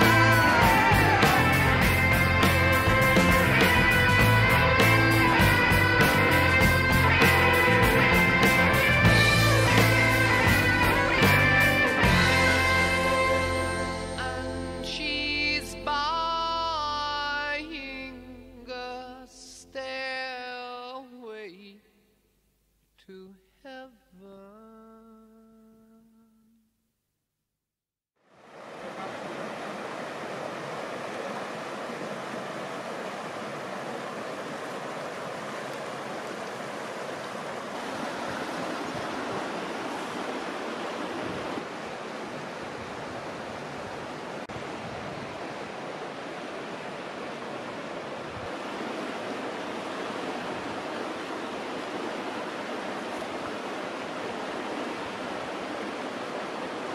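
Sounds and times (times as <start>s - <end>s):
water rushing over stones: 0.0s - 11.3s, 28.3s - 56.9s.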